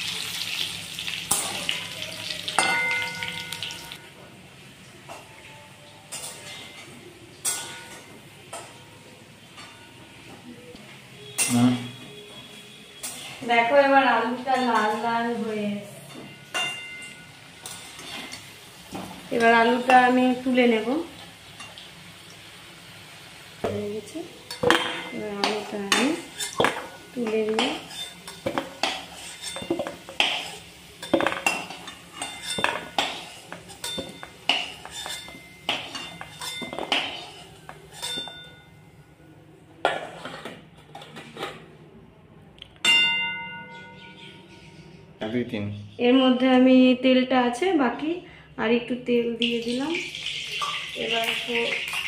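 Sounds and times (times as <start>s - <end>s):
steel plate ringing: 2.6s - 4.0s, 16.1s - 17.8s, 42.8s - 44.5s
metal spatula scraping steel pan: 12.9s - 15.5s, 16.3s - 18.5s, 24.5s - 38.7s, 39.8s - 41.7s.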